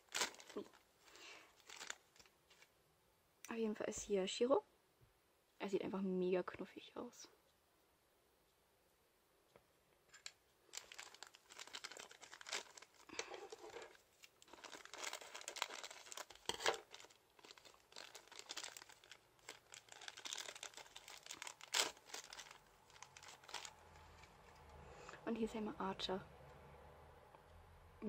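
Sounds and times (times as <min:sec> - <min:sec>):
plastic bag crinkling: 0:00.0 - 0:02.7, 0:10.1 - 0:24.6
scissors cutting plastic: 0:10.1 - 0:23.8.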